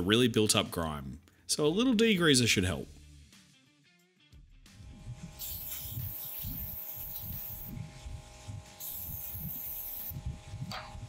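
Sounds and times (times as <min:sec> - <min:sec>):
aerosol can spraying: 0:05.4 - 0:07.8, 0:08.7 - 0:10.2
low steady hum: 0:07.6 - 0:11.0.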